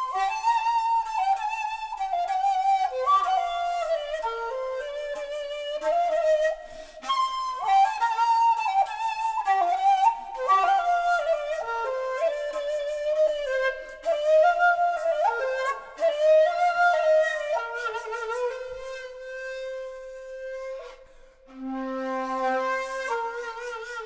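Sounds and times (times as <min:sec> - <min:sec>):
bamboo flute melody: 0:00.0 - 0:24.0.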